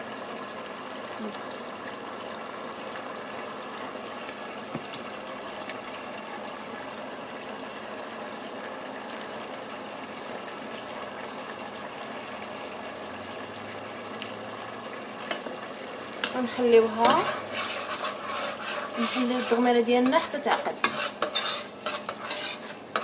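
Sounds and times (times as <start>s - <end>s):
sauce bubbling in pot: 0.0s - 23.0s.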